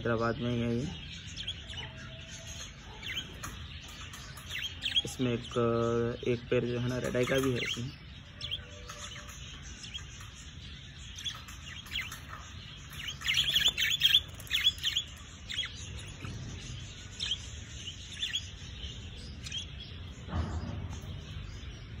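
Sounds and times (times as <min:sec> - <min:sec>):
caged birds chirping: 0:00.0 - 0:22.0.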